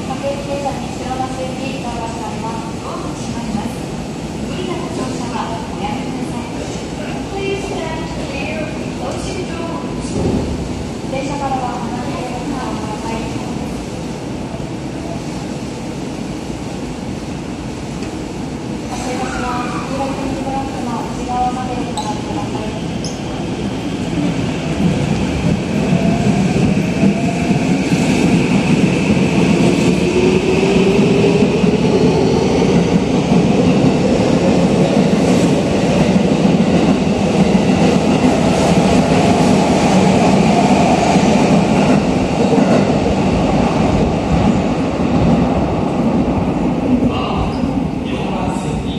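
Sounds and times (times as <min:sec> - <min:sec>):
train wheels rumbling on rail: 0:00.0 - 0:48.9.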